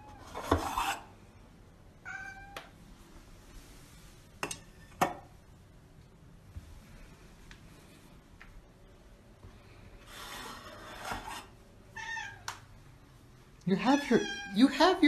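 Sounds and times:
cat meowing: 0:02.0 - 0:02.7, 0:12.0 - 0:12.5, 0:13.8 - 0:14.6.

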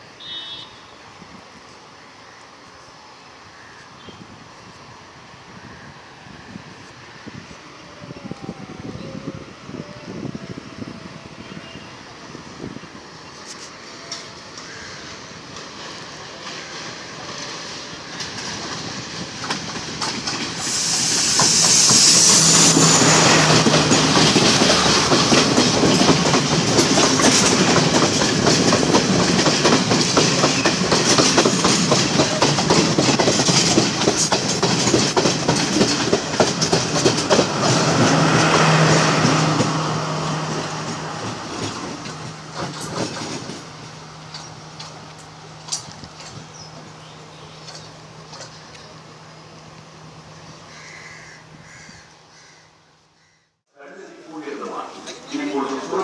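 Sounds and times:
train passing: 0:00.0 - 0:53.1, 0:53.8 - 0:56.0
wheels clickety-clack on rails: 0:13.4 - 0:49.0.

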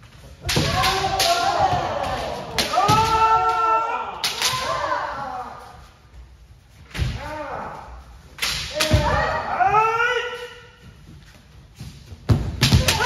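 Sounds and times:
bamboo sword strikes cracking: 0:00.4 - 0:01.6, 0:04.2 - 0:04.8, 0:08.4 - 0:09.2
long shout: 0:00.5 - 0:05.8.

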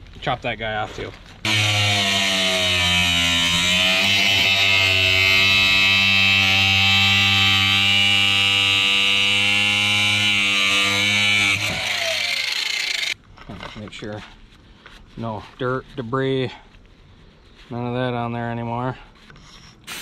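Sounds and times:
angle grinder grinding: 0:01.4 - 0:13.2.

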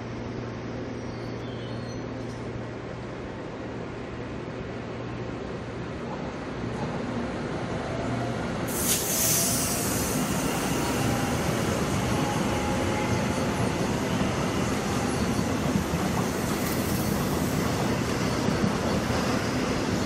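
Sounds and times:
train wheels rumbling on rails: 0:06.1 - 0:20.0
sharp hissing burst: 0:08.7 - 0:11.0.

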